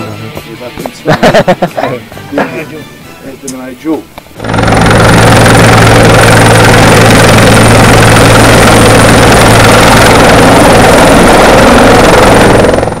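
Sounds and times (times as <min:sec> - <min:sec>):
helicopter rotor and engine: 0:03.4 - 0:13.0.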